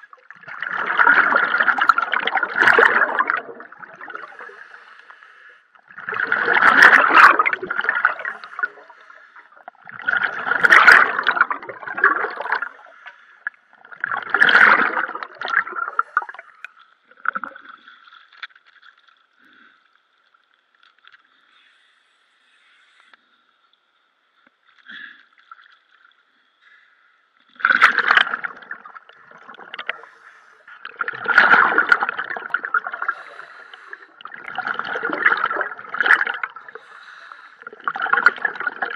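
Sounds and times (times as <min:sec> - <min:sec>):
air bubbling underwater: 0:00.0 - 0:04.4, 0:05.9 - 0:09.0, 0:09.8 - 0:12.9, 0:13.8 - 0:17.8, 0:27.6 - 0:30.2, 0:30.8 - 0:36.9, 0:37.7 - 0:38.9.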